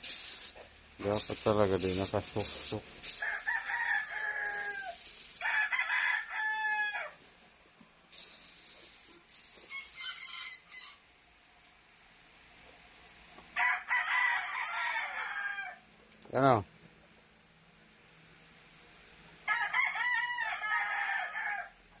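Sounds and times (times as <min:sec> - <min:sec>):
short bursts of high hiss: 0:00.0 - 0:07.1, 0:08.1 - 0:10.7
rooster crowing: 0:03.1 - 0:07.2, 0:09.7 - 0:11.0, 0:13.6 - 0:15.8, 0:19.4 - 0:21.8.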